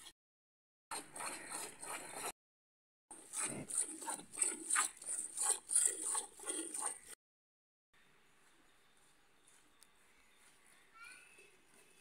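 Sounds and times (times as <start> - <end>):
milk squirting into steel bucket: 3.3 - 7.0.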